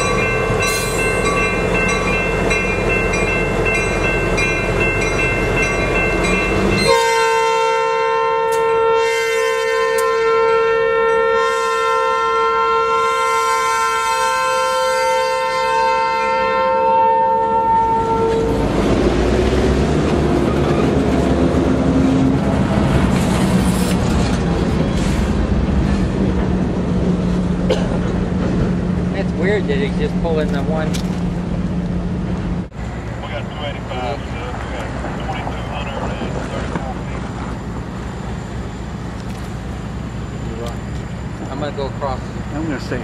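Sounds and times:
train rumbling and rattling past: 0:00.0 - 0:43.0
locomotive horn: 0:06.6 - 0:18.6.

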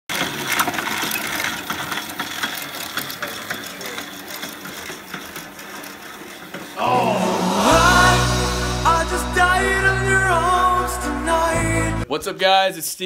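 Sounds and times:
exercise bike flywheel whirring: 0:00.1 - 0:06.8.

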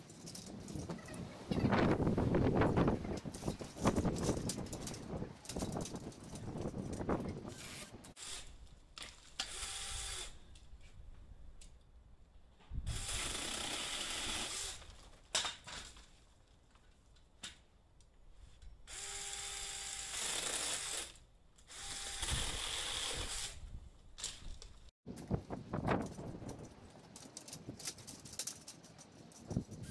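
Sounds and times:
mini chainsaw cutting branches: 0:07.5 - 0:10.5, 0:12.9 - 0:15.0, 0:18.9 - 0:24.6.

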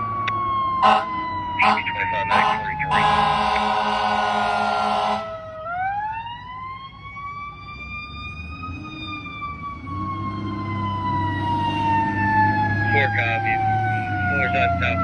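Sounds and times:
siren wailing: 0:00.0 - 0:15.0
fire truck horn blast: 0:00.8 - 0:05.3.

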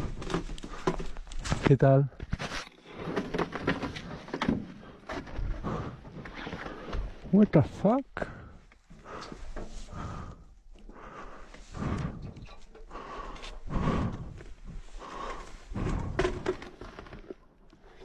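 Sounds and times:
person breathing close to microphone: 0:08.2 - 0:17.3.

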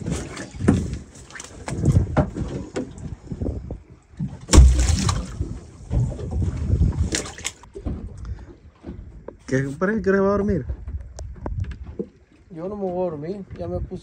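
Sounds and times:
knocks and wet slaps: 0:04.4 - 0:06.0, 0:07.0 - 0:08.0
shark flopping on wet deck: 0:04.4 - 0:07.7.

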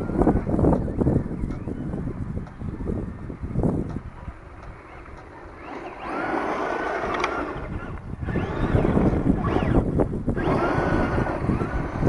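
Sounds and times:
electric motor whine: 0:00.0 - 0:12.0
tyres on loose gravel: 0:04.4 - 0:12.0.

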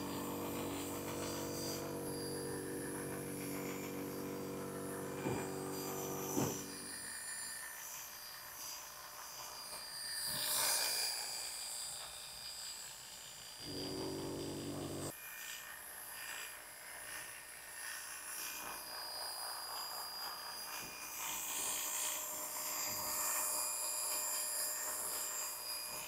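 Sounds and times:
electric hair clippers buzzing: 0:00.0 - 0:15.4, 0:20.6 - 0:26.0.

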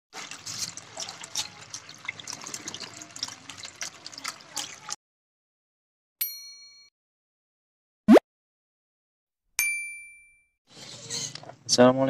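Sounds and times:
water splashing into tray of pebbles: 0:00.2 - 0:05.0.

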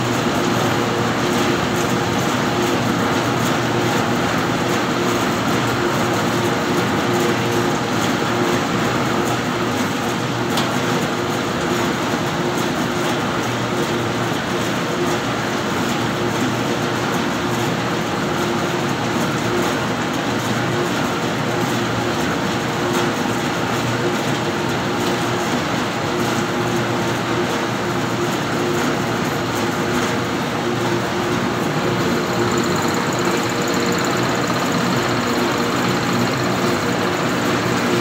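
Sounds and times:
mill machinery humming: 0:27.2 - 0:38.0.

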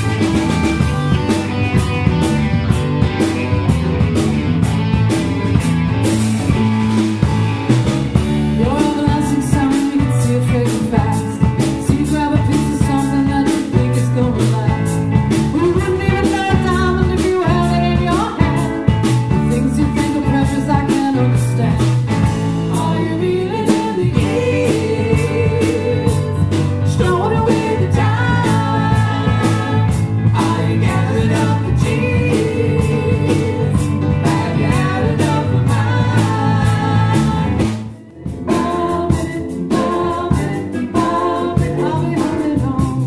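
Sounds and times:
soft rock band music: 0:00.0 - 0:43.0
lead vocal singing: 0:08.4 - 0:18.7, 0:19.3 - 0:43.0.

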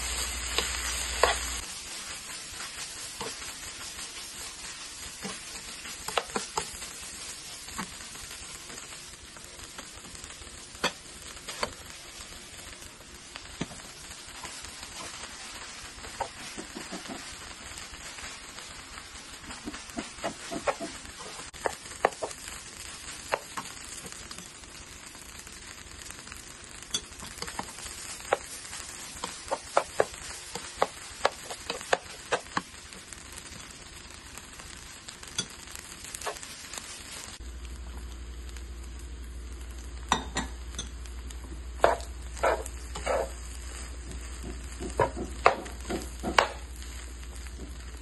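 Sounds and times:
rice sizzling in a skillet: 0:00.0 - 0:48.0
metal spatula scraping a pan: 0:00.4 - 0:06.9, 0:19.5 - 0:22.4, 0:41.8 - 0:46.6.

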